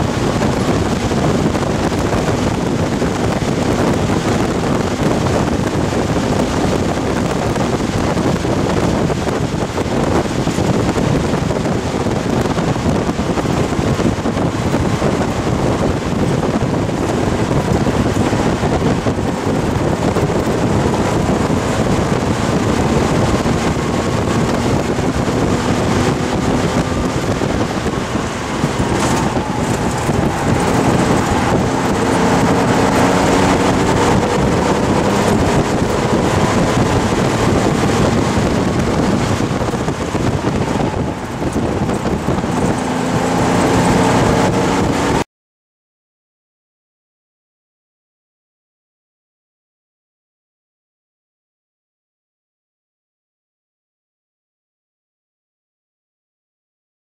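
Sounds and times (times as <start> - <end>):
car engine running hard: 0.0 - 45.2
wind noise: 0.0 - 45.2.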